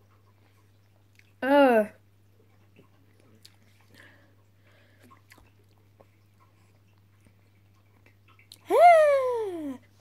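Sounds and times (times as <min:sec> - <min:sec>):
faint chewing of cereal: 0:00.0 - 0:01.4, 0:02.0 - 0:08.7
low steady hum: 0:00.0 - 0:10.0.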